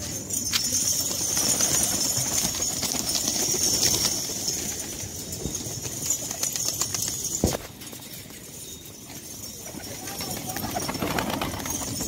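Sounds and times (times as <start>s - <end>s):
pigeons flapping wings: 0.8s - 7.8s, 9.6s - 12.0s.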